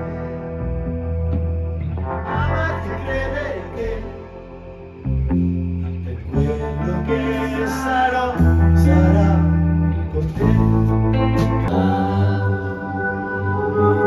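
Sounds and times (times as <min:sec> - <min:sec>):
drums: 0:00.0 - 0:04.1, 0:08.4 - 0:12.4
bass guitar: 0:00.0 - 0:14.0
electric guitar chords: 0:00.0 - 0:14.0.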